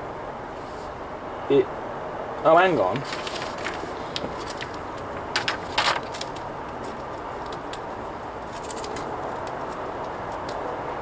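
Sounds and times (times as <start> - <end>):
paper leaflet rustling: 2.8 - 7.7.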